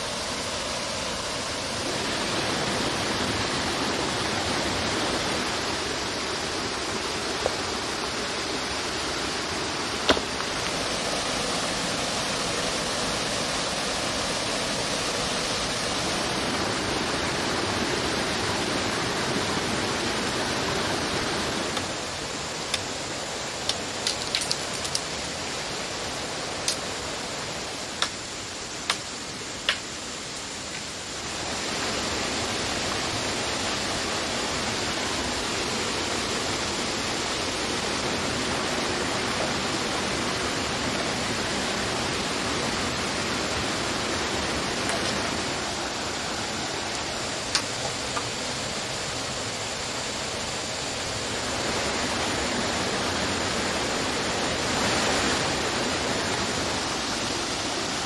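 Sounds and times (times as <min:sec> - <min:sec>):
stream water running: 0:00.0 - 0:58.0
wood knocking and snapping: 0:10.0 - 0:10.6.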